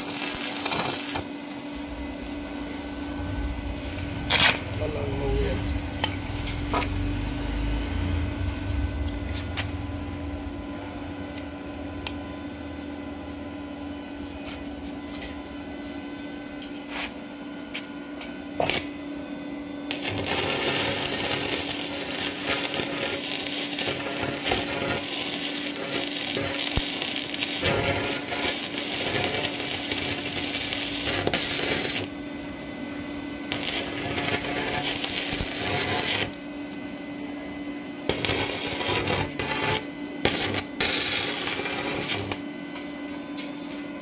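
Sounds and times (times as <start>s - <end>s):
welding arc crackling hiss: 0.0s - 7.6s, 19.9s - 32.2s, 33.5s - 37.0s, 38.0s - 42.4s
welding machine hum: 0.0s - 16.8s, 17.6s - 43.9s.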